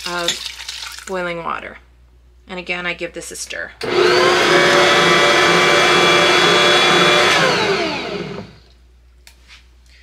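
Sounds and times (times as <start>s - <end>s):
stand mixer motor whining: 3.8s - 8.7s.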